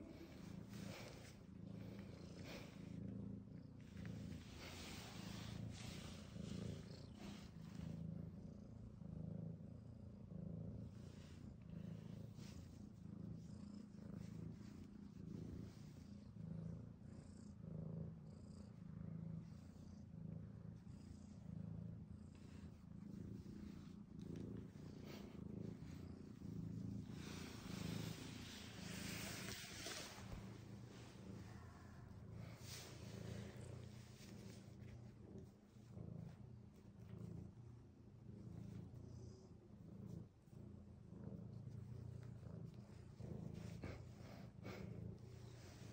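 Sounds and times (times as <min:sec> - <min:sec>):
cat purring: 0:00.0 - 0:45.9.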